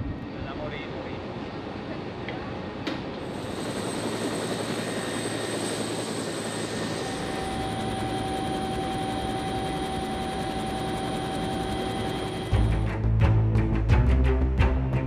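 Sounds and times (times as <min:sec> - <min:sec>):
helicopter engine and rotors: 0:00.0 - 0:13.0
second steady whine: 0:03.3 - 0:12.8.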